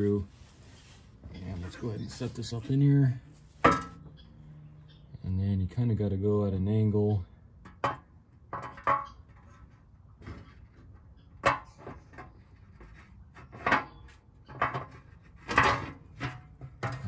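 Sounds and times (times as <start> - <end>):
metal pan clunking against transmission: 3.6 - 4.3, 7.6 - 9.5, 10.2 - 12.4, 13.4 - 17.0.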